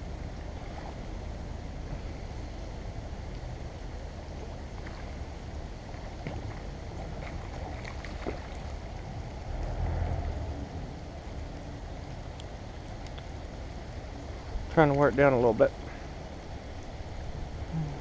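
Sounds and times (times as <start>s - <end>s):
faint ticks: 12.3s - 13.5s.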